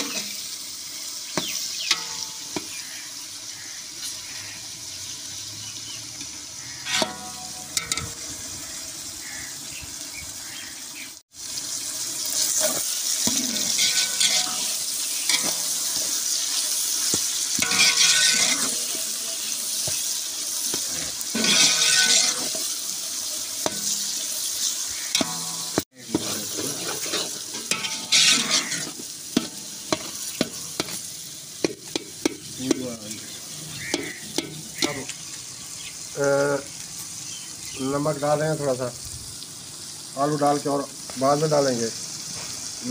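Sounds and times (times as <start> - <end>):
masala sizzling in pot: 0.0 - 42.9
steel ladle stirring: 13.6 - 16.3, 17.6 - 19.0, 21.4 - 22.7, 25.2 - 31.0.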